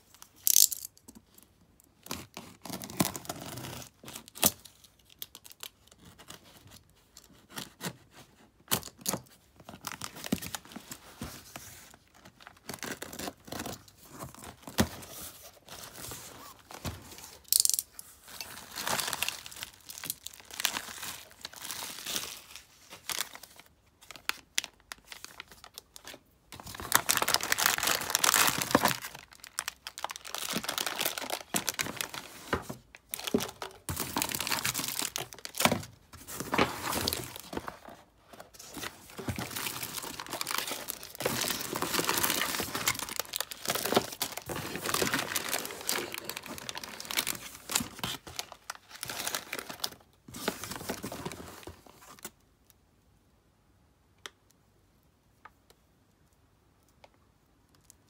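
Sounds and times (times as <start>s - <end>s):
bubble-wrap bags crinkling: 9.7s - 51.8s
packing tape tearing: 38.7s - 49.9s.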